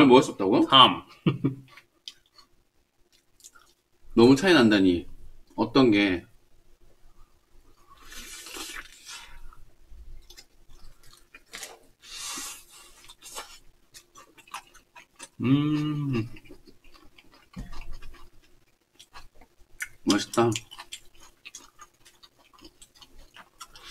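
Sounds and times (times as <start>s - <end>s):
people chewing: 1.1s - 2.5s, 3.1s - 3.8s, 7.7s - 23.9s
person humming mmm: 15.4s - 16.4s.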